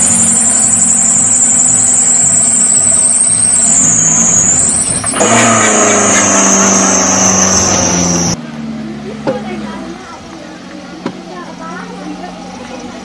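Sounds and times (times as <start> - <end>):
high wavering whine: 0.0 - 8.4
car engine running: 0.0 - 13.0.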